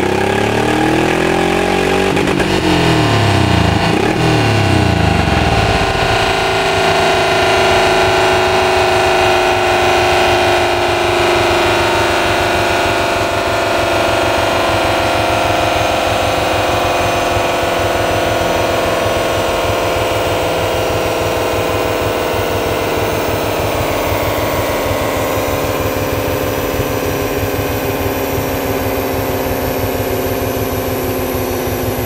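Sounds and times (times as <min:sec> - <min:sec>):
motorcycle engine on dynamometer: 0:00.0 - 0:32.0.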